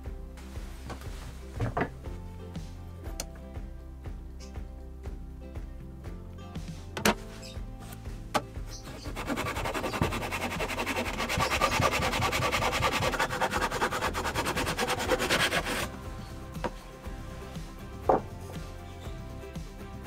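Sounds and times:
hand saw cutting wood: 8.9s - 15.9s.

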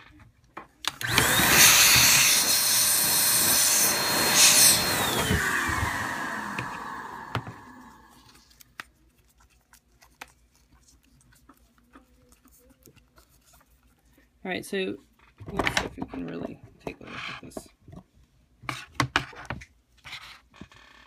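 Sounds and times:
hot-air blower whine: 0.9s - 8.3s
fan winding down: 1.0s - 8.0s.

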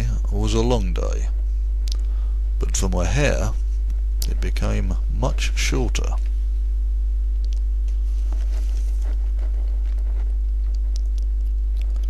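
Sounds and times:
low electrical hum: 0.0s - 12.0s
faint rustles: 7.8s - 12.0s.

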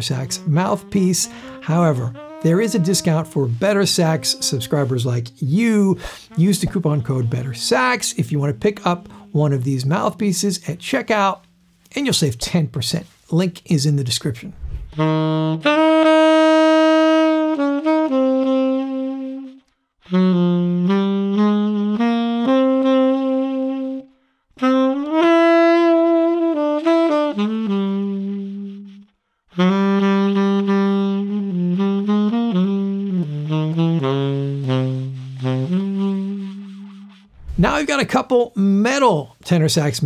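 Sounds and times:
tenor saxophone playing: 0.0s - 11.6s, 14.9s - 38.4s
saxophonist breathing: 1.2s - 1.7s, 6.0s - 6.4s, 9.0s - 9.4s.

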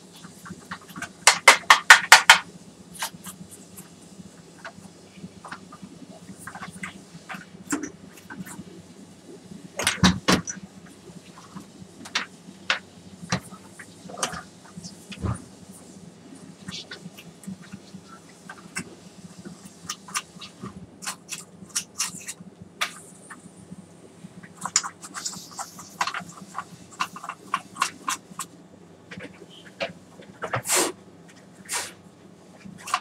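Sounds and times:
low electrical hum: 0.0s - 33.0s
hard objects clicking and knocking: 0.7s - 2.5s.

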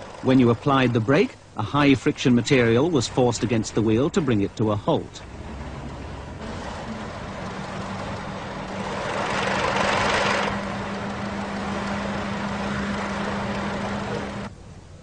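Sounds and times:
spinning wheel humming: 0.0s - 14.5s.

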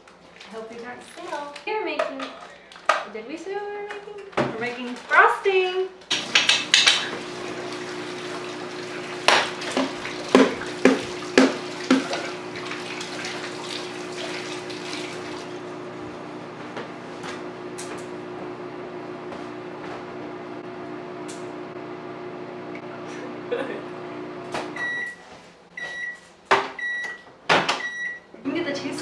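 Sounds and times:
faucet running into sink: 6.2s - 15.5s.

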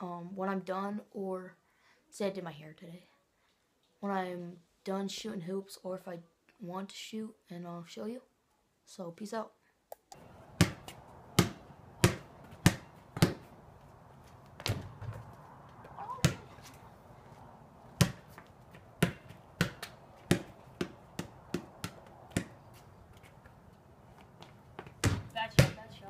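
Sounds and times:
basketball bouncing on concrete: 10.2s - 13.6s, 14.4s - 23.2s, 24.2s - 26.0s.

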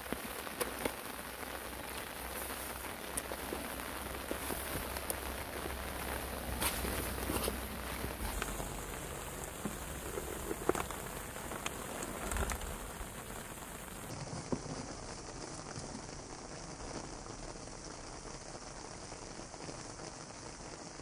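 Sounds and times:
water dripping onto pond: 0.0s - 20.8s.

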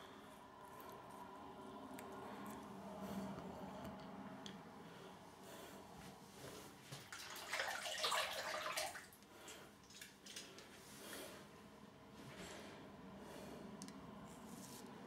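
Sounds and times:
water splashing from tap: 7.0s - 9.2s.

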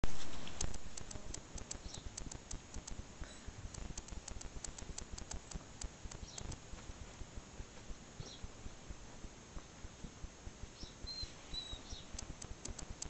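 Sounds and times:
puppy claws clicking on concrete: 0.4s - 3.0s, 3.7s - 6.6s, 12.1s - 13.0s.

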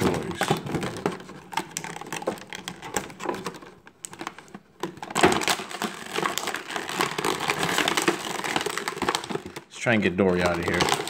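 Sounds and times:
plastic packaging crinkling: 0.0s - 11.0s.

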